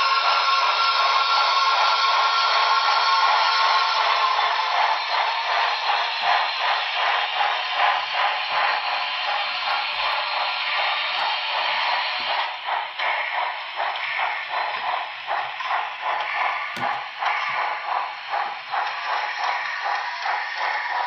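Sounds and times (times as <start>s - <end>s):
steam hiss: 0.0s - 21.0s
steam locomotive chuffing: 0.0s - 21.0s.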